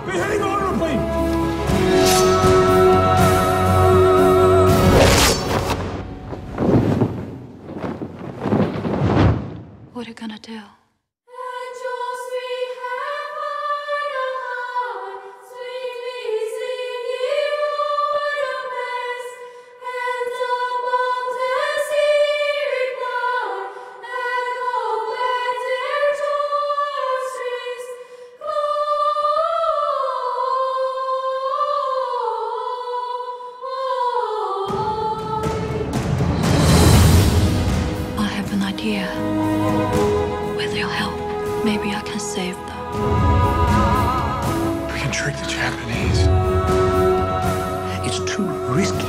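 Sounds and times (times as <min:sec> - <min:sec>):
high voices singing: 0:00.0 - 0:06.2, 0:11.3 - 0:36.3, 0:38.2 - 0:49.0
loud rushing noise: 0:04.8 - 0:09.9.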